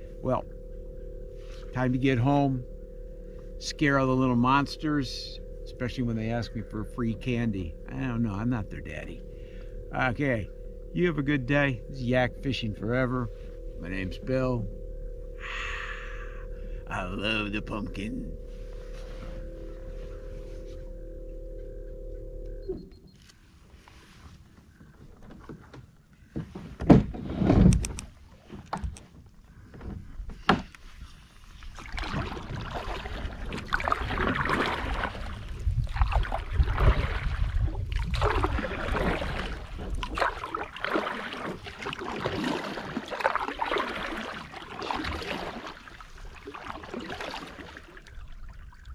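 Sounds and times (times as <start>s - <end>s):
paddle strokes in water: 23.6s - 48.9s
water swishing: 30.8s - 48.9s
paddle knocking against kayak: 31.8s - 48.2s.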